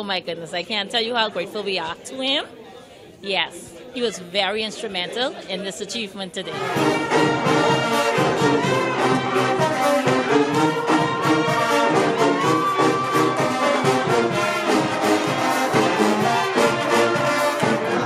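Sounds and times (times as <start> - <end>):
brass ensemble music: 6.5 - 18.0.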